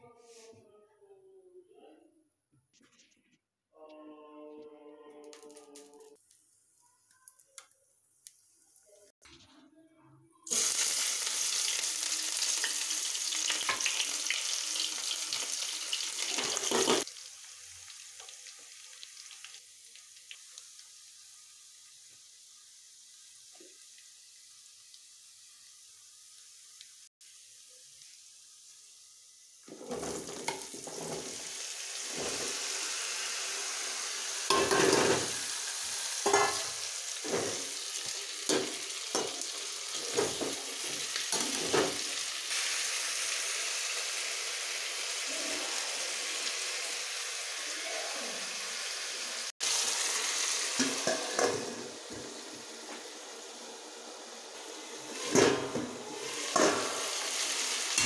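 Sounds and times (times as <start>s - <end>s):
vegetables sizzling in oil: 10.5s - 58.0s
steel plate clanking on pan: 34.5s - 35.3s, 36.2s - 36.7s, 50.8s - 51.8s.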